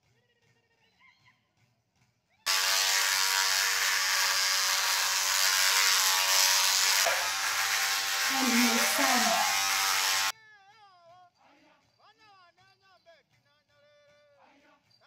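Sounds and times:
electric hair clipper buzzing: 2.5 - 10.3.

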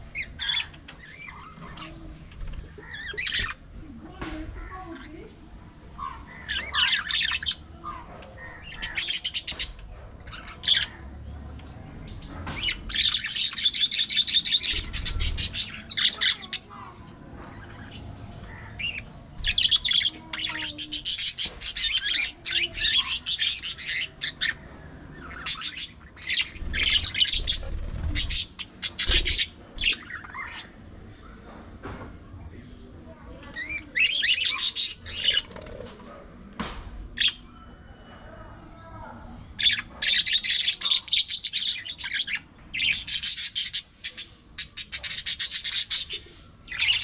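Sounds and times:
budgerigars chattering: 5.8 - 11.0, 17.7 - 30.8, 33.5 - 35.8, 39.5 - 47.0.

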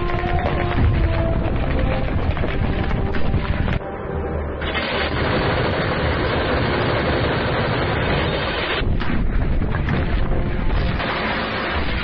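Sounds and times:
minigun firing continuous burst: 4.5 - 12.0.

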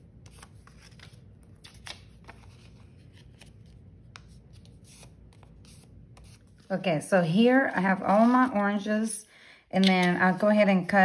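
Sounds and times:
paper rustling and crinkling: 0.2 - 6.7.

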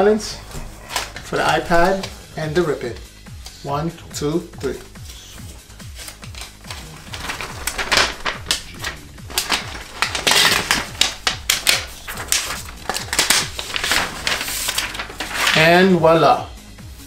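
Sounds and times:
paper wrap tearing: 5.9 - 15.8.

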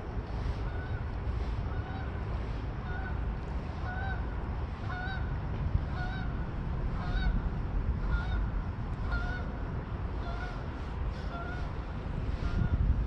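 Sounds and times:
geese honking: 1.7 - 2.2, 2.8 - 5.3, 5.9 - 7.4, 8.0 - 12.8.

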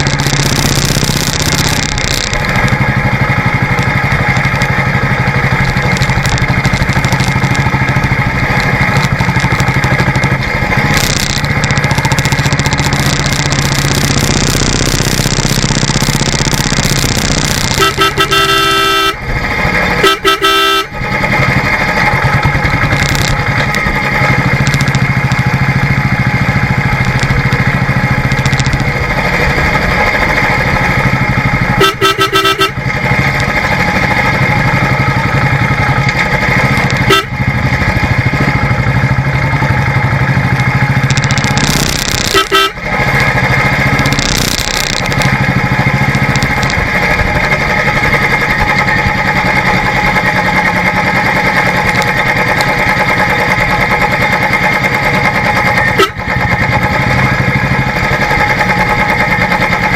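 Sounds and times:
motorcycle engine running: 0.0 - 59.9
wind and road noise: 0.0 - 59.9
vehicle horn honking: 17.7 - 19.2, 20.0 - 21.0, 31.7 - 32.8, 37.0 - 37.4, 42.2 - 42.9, 55.9 - 56.3.

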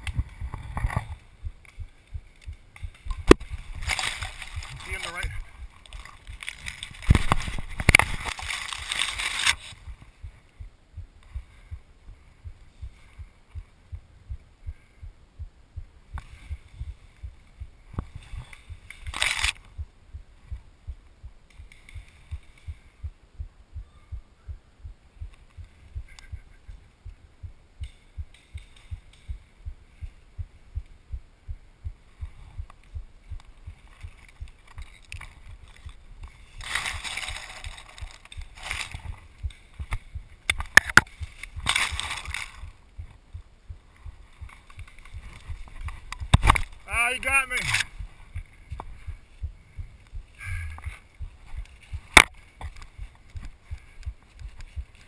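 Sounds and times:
low thumping pulse: 0.0 - 8.2, 9.8 - 34.8, 37.9 - 46.9, 47.8 - 55.0
branches rustling against camera: 0.0 - 10.6, 16.1 - 23.0, 32.0 - 55.0.

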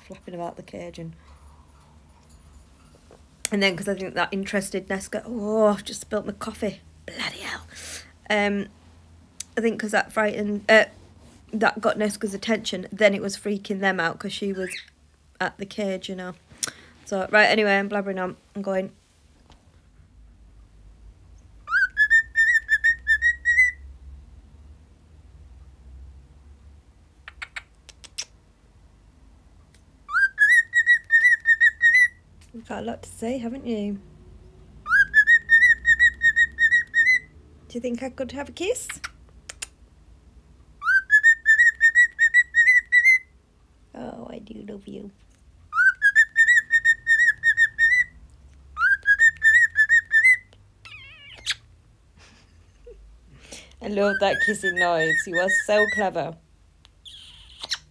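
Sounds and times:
cockatiel whistling: 21.6 - 23.8, 30.1 - 32.2, 34.8 - 37.3, 40.8 - 43.3, 45.7 - 48.2, 48.8 - 51.6, 54.1 - 56.0
kissing sound: 27.3 - 28.4, 39.0 - 39.8.

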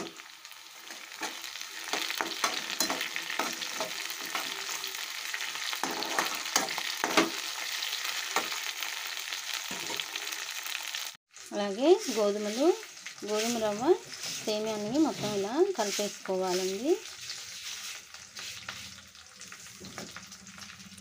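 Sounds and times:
food sizzling in hot oil: 0.0 - 21.0
metal spatula scraping pan: 0.8 - 5.0, 5.6 - 7.4, 11.9 - 20.7.

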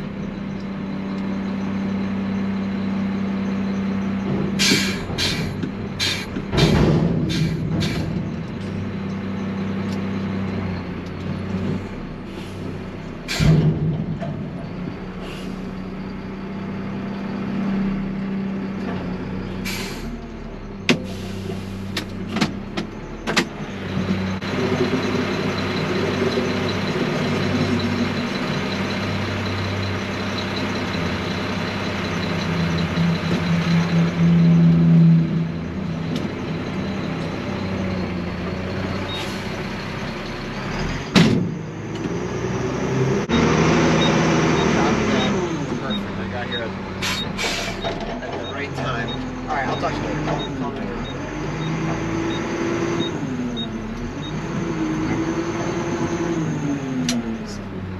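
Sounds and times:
garbage truck diesel engine: 0.0 - 57.9
metal dumpster clanks and bangs: 4.0 - 9.0, 13.2 - 15.2, 40.9 - 41.7.

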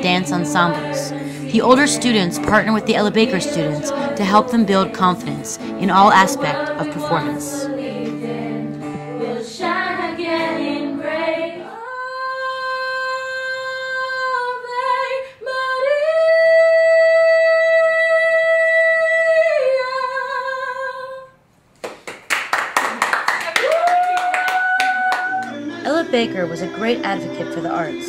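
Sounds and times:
acoustic guitar: 0.0 - 15.9, 25.1 - 28.0
group singing: 0.0 - 16.3, 24.8 - 28.0.

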